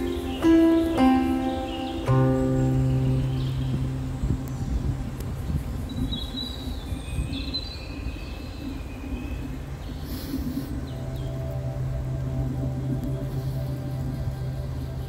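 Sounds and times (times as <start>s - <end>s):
low outdoor rumble: 2.1s - 6.2s, 9.7s - 15.0s.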